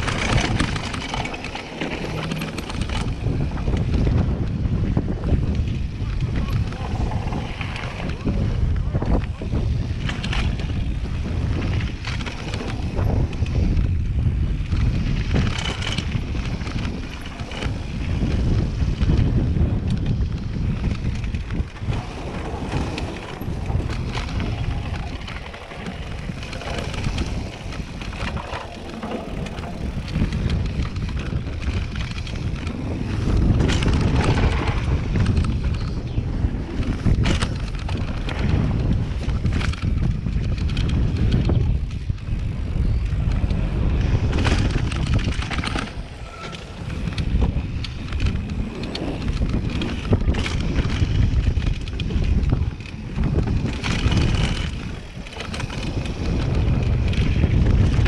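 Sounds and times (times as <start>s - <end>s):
bike knocking and rattling: 0.0s - 58.0s
bike tyres rumbling on gravel: 0.0s - 58.0s
wind rushing over microphone: 0.0s - 58.0s.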